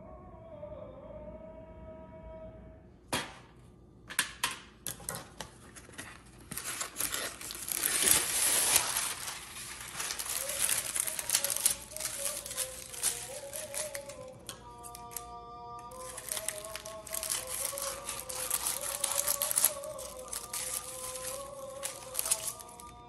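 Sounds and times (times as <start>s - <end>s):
parchment paper crinkling: 5.2s - 15.3s, 15.9s - 23.0s.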